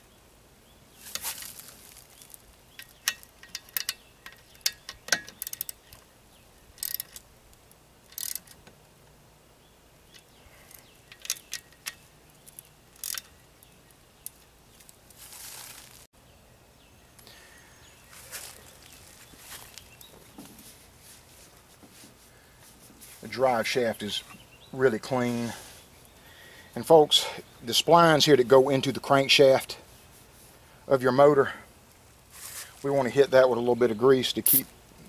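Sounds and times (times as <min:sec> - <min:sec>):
metal clicks: 0:02.7 - 0:06.1, 0:06.7 - 0:08.8, 0:10.1 - 0:15.0
wrench ratcheting: 0:02.8 - 0:06.0, 0:06.8 - 0:07.2, 0:08.0 - 0:08.6, 0:10.2 - 0:13.4.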